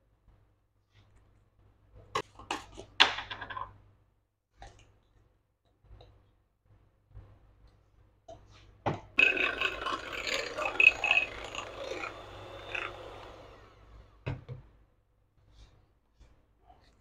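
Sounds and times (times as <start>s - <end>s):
electric hand mixer beating batter: 9.2s - 14.2s.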